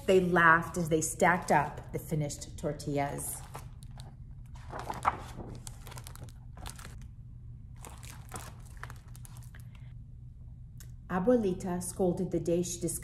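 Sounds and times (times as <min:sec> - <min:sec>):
book pages turning: 0:03.3 - 0:07.1, 0:07.8 - 0:09.8.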